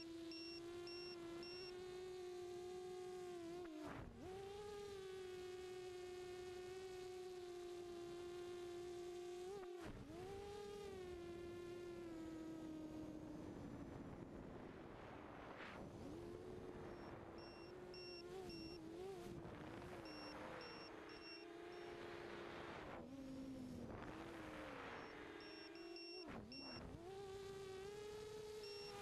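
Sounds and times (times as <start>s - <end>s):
drone motors whining: 0.0s - 2.2s, 16.2s - 29.0s
short high beeps: 0.3s - 1.7s, 17.0s - 18.8s, 20.0s - 22.0s, 25.0s - 26.8s.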